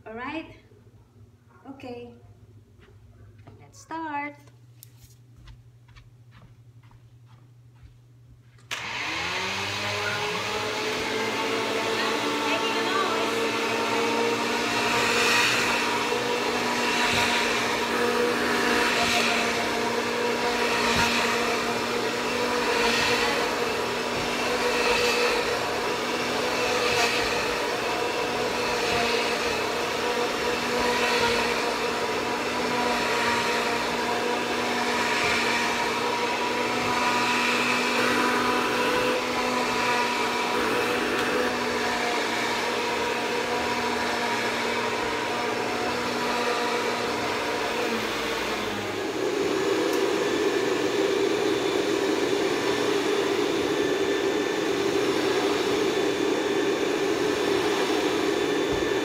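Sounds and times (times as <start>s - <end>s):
vacuum cleaner motor whining: 8.6s - 59.0s
vacuum head pushed over rug: 8.7s - 59.0s.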